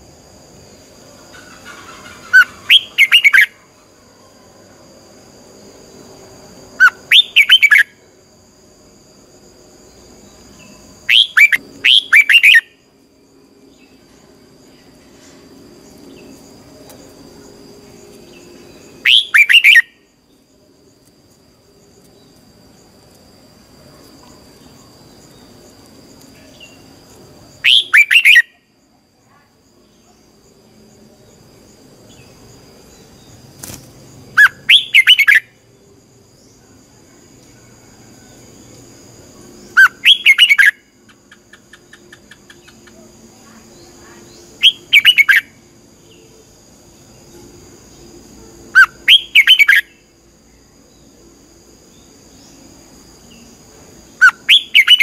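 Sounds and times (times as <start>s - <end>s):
bird song phrases: 6.8s - 7.8s, 34.4s - 35.4s, 39.7s - 40.7s, 41.3s - 46.3s, 48.8s - 51.2s, 54.2s - 55.0s.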